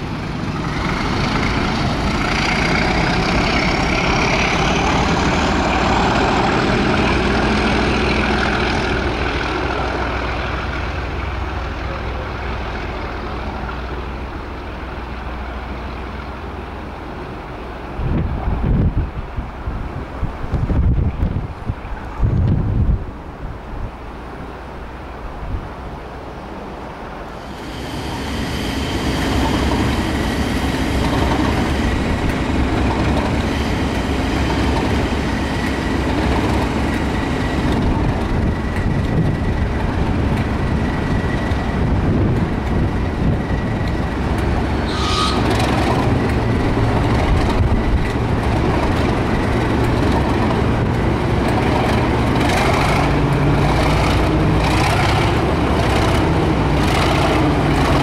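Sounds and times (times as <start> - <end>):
diesel locomotive engine running: 0.0 - 23.0, 26.0 - 58.0
short high-pitched note: 44.8 - 45.6.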